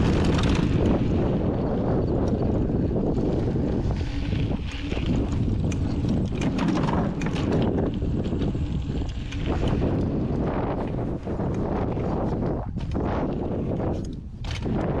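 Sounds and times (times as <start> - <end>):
bike rattling clicks: 0.0 - 15.0
wind buffeting microphone: 0.0 - 15.0
tyres clattering over wooden planks: 5.8 - 7.7.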